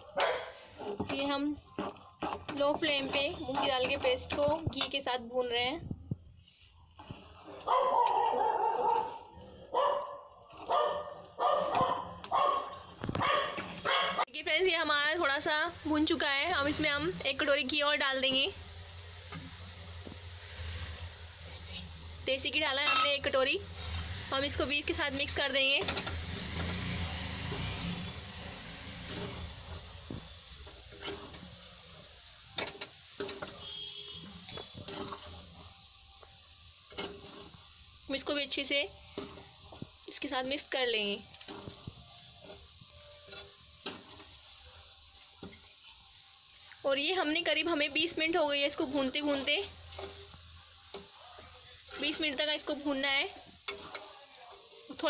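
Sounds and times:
spoon stirring paste in pan: 0.6 - 5.2, 6.4 - 7.7, 22.5 - 55.0.

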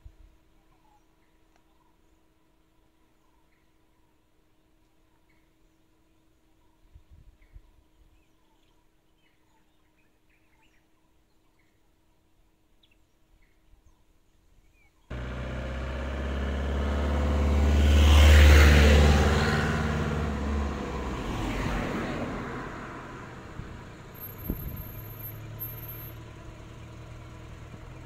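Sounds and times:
vehicle driving past: 15.1 - 28.0.

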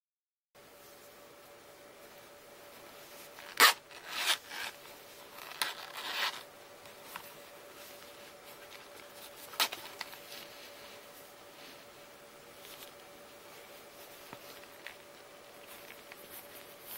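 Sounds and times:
zipper rasping open: 3.4 - 4.8.

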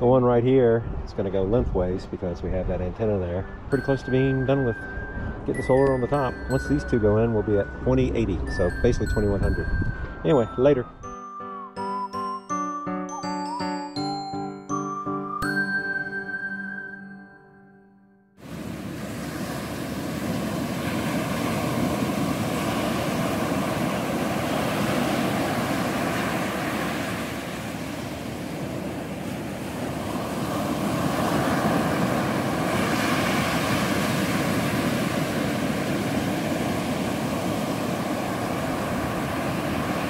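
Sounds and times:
ocean surf breaking on beach: 18.4 - 40.0.

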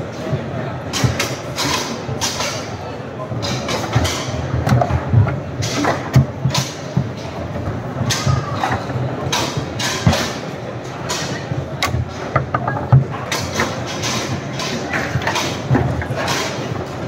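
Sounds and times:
foosball clacks and knocks: 3.5 - 17.0.

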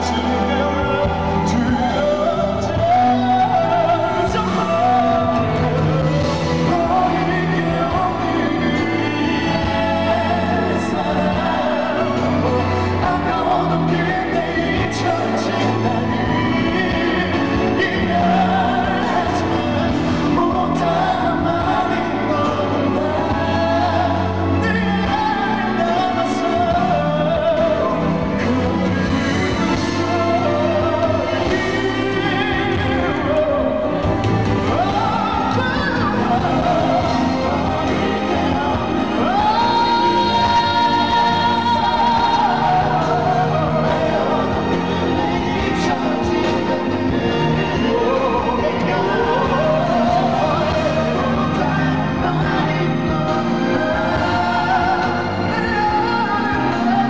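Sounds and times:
band and orchestra playing: 0.0 - 57.0
man singing: 0.0 - 57.0.

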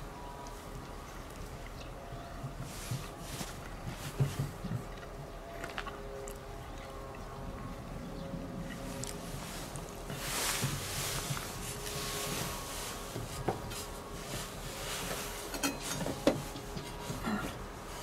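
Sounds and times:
soft rustling: 8.8 - 18.0.

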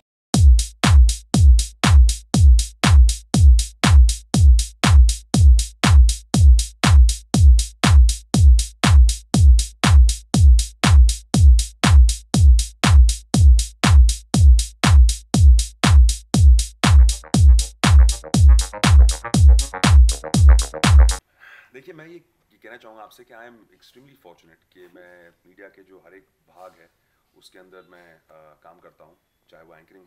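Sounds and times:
drum machine kick: 0.4 - 21.2.

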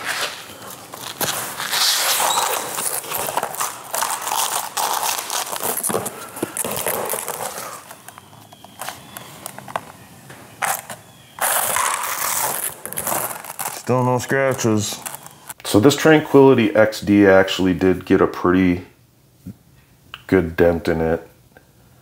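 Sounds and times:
scraping across vinyl plank: 0.0 - 8.0.

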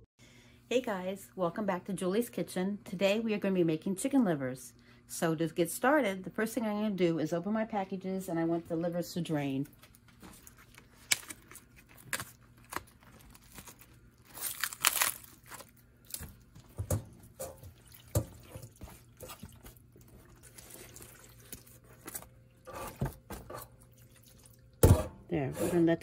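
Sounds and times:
plastic wrap crinkling: 9.8 - 16.8
wet squelches: 9.8 - 22.7, 23.7 - 24.8
knocks in a metal colander: 24.8 - 25.2.

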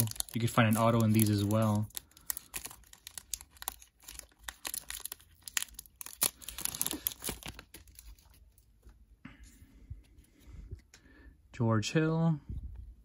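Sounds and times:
foil wrapper crinkling and tearing: 0.0 - 8.5.

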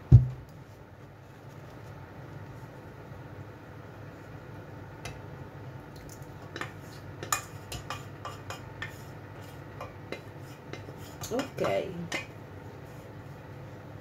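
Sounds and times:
utensil scraping metal pot: 6.5 - 12.2.

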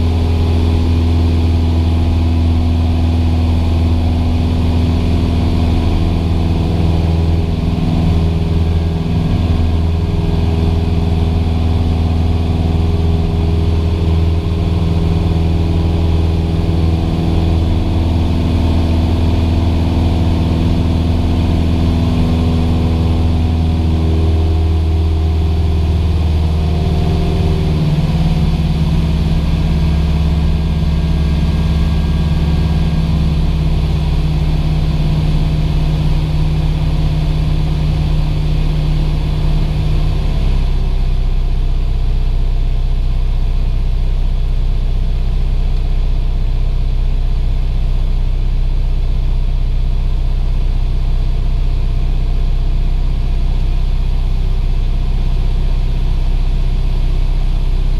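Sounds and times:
airplane engine and propeller droning: 0.0 - 57.9.

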